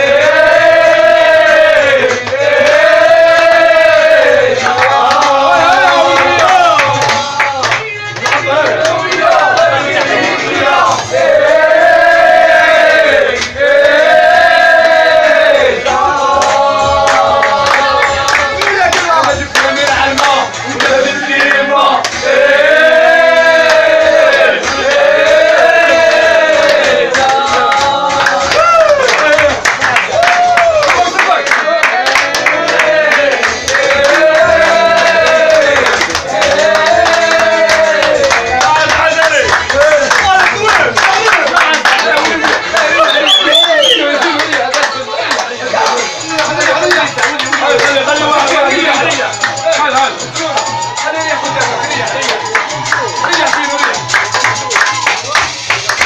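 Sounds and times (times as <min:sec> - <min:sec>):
men chanting together: 0:00.0 - 0:28.6, 0:31.1 - 0:49.4
sharp handclaps: 0:02.0 - 0:02.9, 0:04.6 - 0:10.2, 0:13.3 - 0:13.6, 0:16.4 - 0:22.2, 0:26.0 - 0:56.0.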